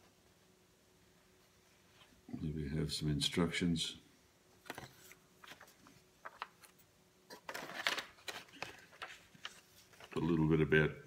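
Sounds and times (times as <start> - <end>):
paper sheets rustling: 4.6 - 10.7.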